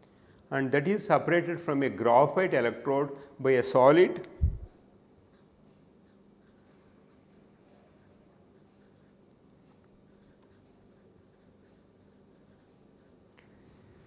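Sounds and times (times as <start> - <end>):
low steady hum: 1.2 - 14.0
marker writing on paper: 5.3 - 9.2, 10.1 - 13.2.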